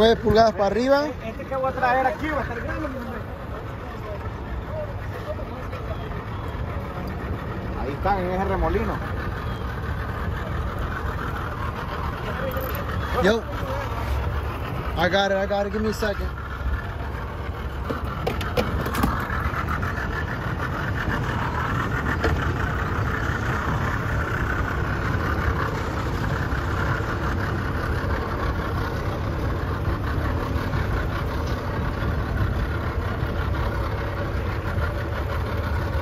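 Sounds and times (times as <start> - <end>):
boat engine idling: 0.0 - 36.0.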